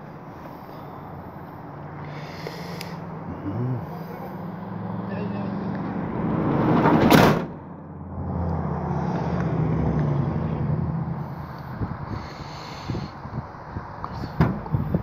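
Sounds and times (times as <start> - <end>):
vehicle engine humming: 0.0 - 15.0
loud rushing noise: 5.6 - 7.8.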